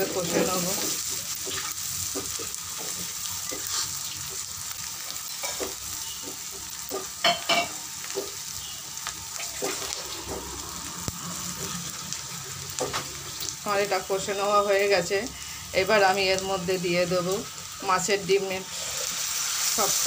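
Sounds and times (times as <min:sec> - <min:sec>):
onions sizzling in hot oil: 0:00.0 - 0:20.0.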